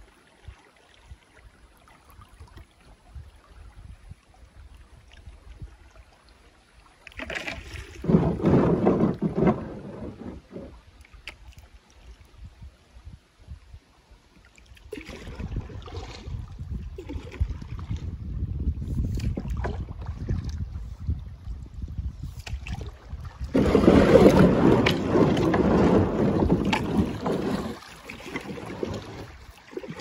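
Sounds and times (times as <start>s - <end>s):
moving water: 0.0s - 30.0s
water and kayak hull noise: 0.0s - 30.0s
wind on microphone: 2.1s - 6.1s, 7.6s - 11.0s, 12.0s - 13.9s, 14.7s - 30.0s.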